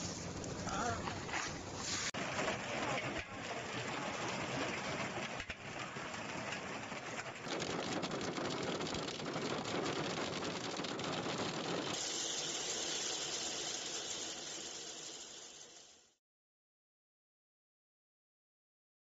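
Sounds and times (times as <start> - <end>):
heavy rain hissing: 1.8 - 15.7
hailstones ticking on surfaces: 2.2 - 12.4.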